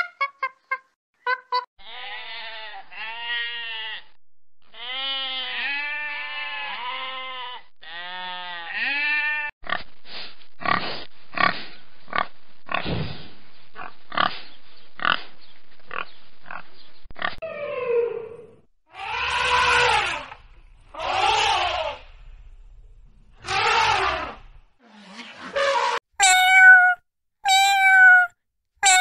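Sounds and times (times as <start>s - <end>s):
sheep bleating: 1.8s - 4.1s, 4.7s - 9.5s
pigs grunting: 10.6s - 13.0s, 13.8s - 14.4s.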